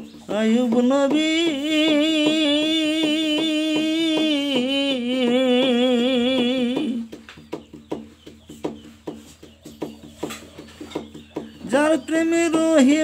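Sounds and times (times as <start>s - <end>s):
man singing with vibrato: 0.0s - 7.1s, 11.6s - 13.0s
sharp rhythmic taps: 0.0s - 12.6s.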